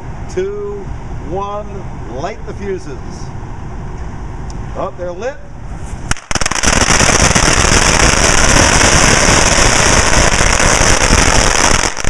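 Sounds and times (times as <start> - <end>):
firecrackers crackling: 6.1 - 12.0.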